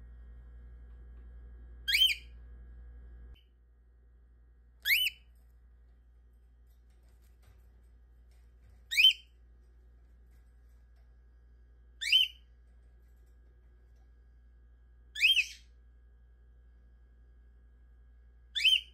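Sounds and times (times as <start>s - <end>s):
cockatiel whistled calls: 1.9s - 2.3s, 4.8s - 5.2s, 8.9s - 9.2s, 12.0s - 12.4s, 15.2s - 15.7s, 18.6s - 18.9s.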